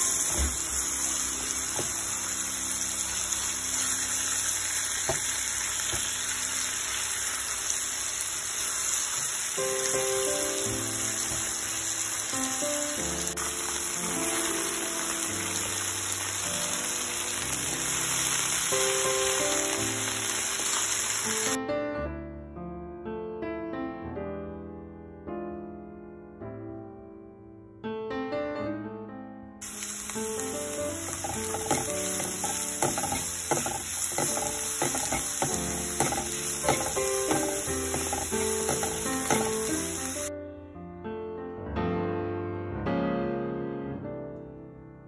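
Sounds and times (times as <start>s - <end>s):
chicken sizzling in oil: 0.0s - 21.6s, 29.6s - 40.3s
piano music: 0.0s - 45.0s
spatula scraping and tapping pan: 31.0s - 39.9s.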